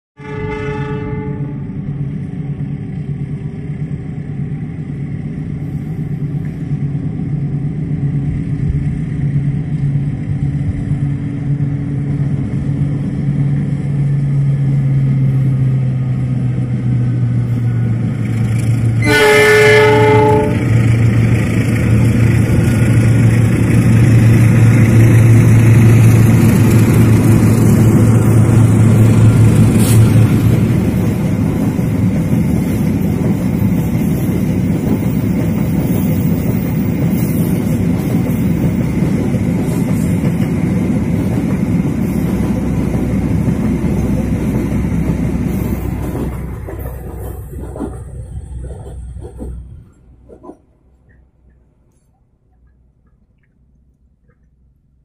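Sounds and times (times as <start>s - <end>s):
train horn blast: 0.2s - 1.8s, 19.0s - 21.0s
diesel locomotive engine drone: 0.2s - 55.0s
train wheels rumbling on rails: 0.6s - 52.1s.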